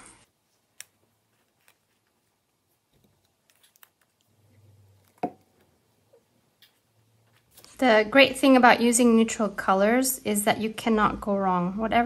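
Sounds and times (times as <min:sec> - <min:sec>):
paper clicks and rustles: 0:00.5 - 0:04.3.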